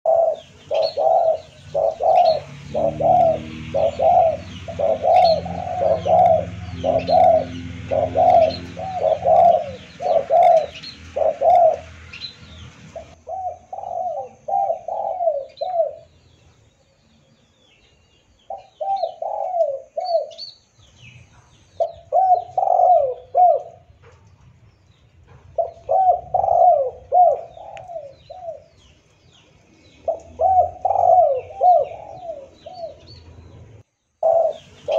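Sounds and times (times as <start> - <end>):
dove cooing: 0.0 - 16.2, 18.5 - 20.4, 21.8 - 24.0, 25.5 - 28.9, 29.9 - 33.5, 34.2 - 34.9.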